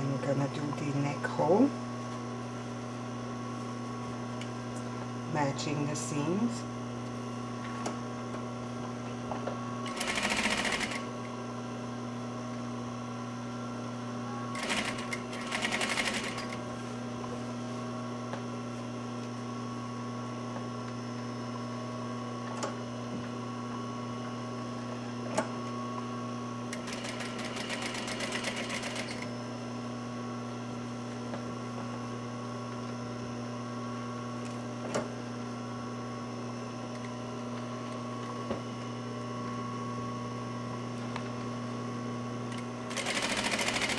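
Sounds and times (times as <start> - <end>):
sewing machine stitching: 9.9 - 11.0, 14.6 - 16.6, 26.8 - 29.3, 42.9 - 43.9.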